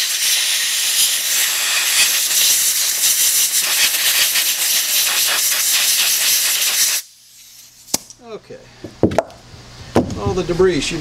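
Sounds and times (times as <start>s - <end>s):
compressed air blow gun hissing: 0.0s - 8.0s.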